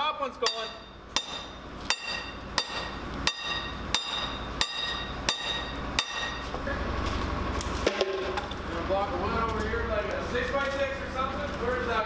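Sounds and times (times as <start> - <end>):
hammer striking steel pin: 0.4 - 6.5.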